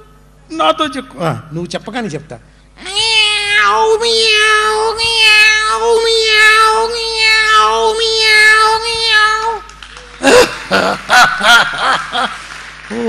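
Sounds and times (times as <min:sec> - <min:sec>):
man mimicking cat meow: 0:02.8 - 0:09.6.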